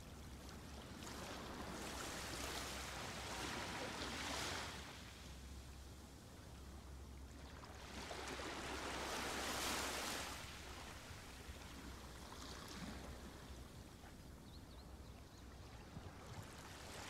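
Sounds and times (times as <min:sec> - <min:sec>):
sea waves washing onto shore: 0:07.7 - 0:11.6.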